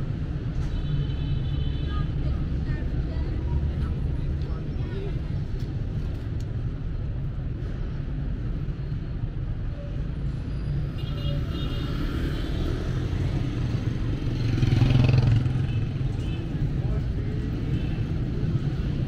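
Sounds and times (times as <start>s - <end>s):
traffic rumble: 0.0s - 19.0s.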